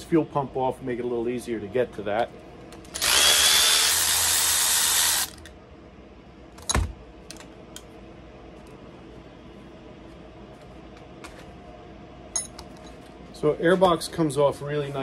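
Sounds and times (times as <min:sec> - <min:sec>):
cordless drill whining: 0:03.0 - 0:05.4.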